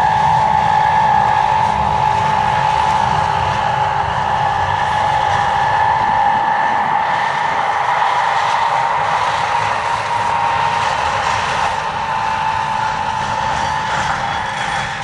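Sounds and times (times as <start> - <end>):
low mechanical rumble: 0.0 - 15.0
train high whine: 0.0 - 15.0.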